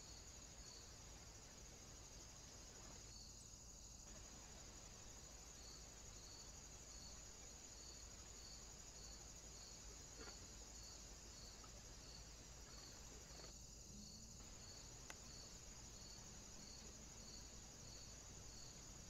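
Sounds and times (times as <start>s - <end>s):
faint high-pitched hiss: 0.0s - 19.0s
faint click: 15.0s - 15.3s.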